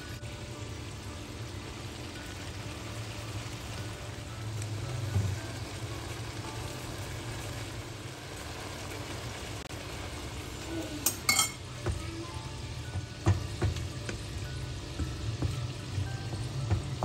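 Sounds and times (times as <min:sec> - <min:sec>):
food sizzling in a pan: 0:00.0 - 0:17.0
utensil clinking against pan: 0:11.0 - 0:11.6.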